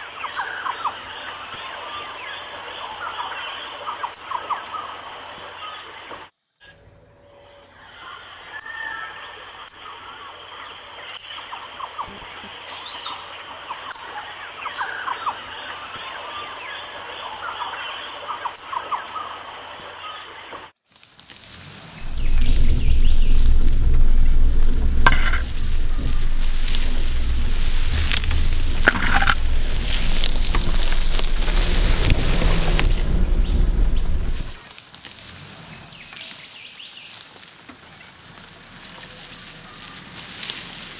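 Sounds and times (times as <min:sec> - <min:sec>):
hiss: 0:21.3 - 0:36.4, 0:37.1 - 0:40.9
birds calling: 0:22.0 - 0:34.6
high insect drone: 0:22.0 - 0:34.6
low rumble: 0:22.0 - 0:34.6.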